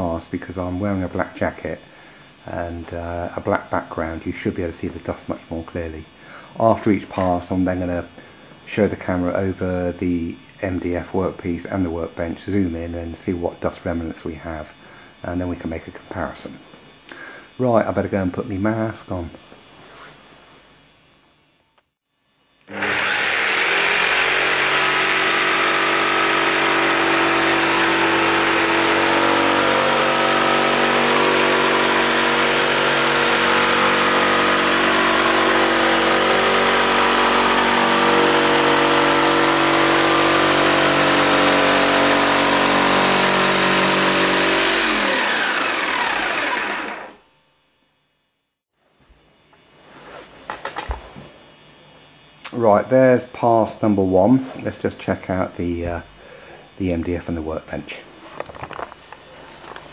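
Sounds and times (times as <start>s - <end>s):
jigsaw cutting wood board: 22.7s - 47.2s.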